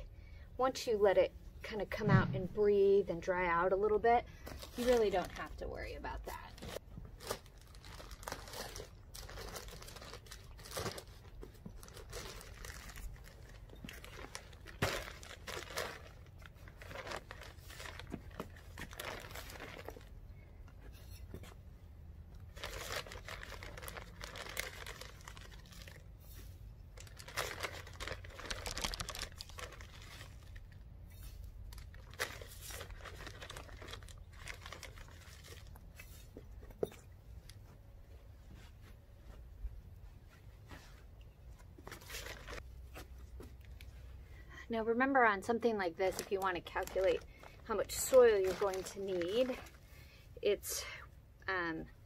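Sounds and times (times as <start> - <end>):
plastic bag crinkling: 6.4 - 20.2, 22.4 - 26.2, 26.9 - 36.3, 41.8 - 42.6, 46.0 - 49.9.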